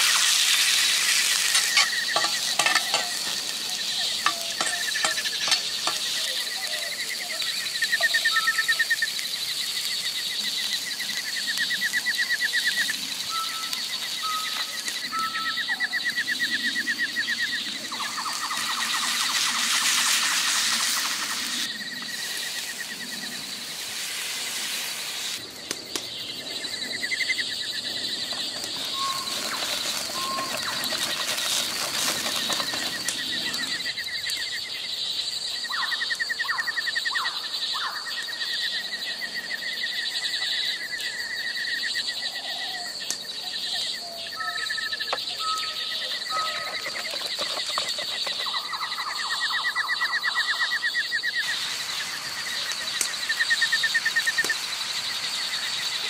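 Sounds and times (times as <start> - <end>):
wood fire crackling: 0.0 - 15.4, 17.6 - 34.6, 46.6 - 48.7, 51.4 - 56.0
food sizzling in a frying pan: 0.0 - 15.8, 17.6 - 25.4, 28.3 - 34.0, 51.4 - 56.0
forest birds singing: 1.1 - 23.8, 25.2 - 56.0.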